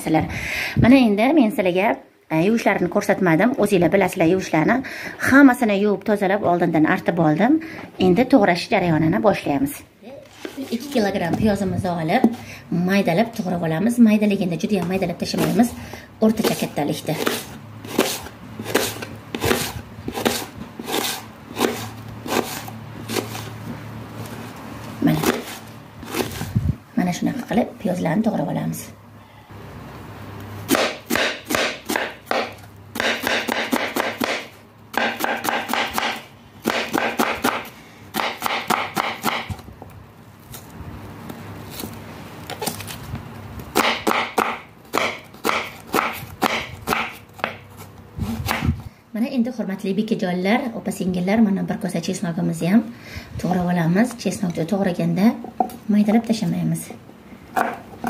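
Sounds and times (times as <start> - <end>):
knife slicing onion on board: 16.3 - 23.6, 25.1 - 26.5, 30.7 - 39.6, 43.7 - 48.8, 57.6 - 57.8.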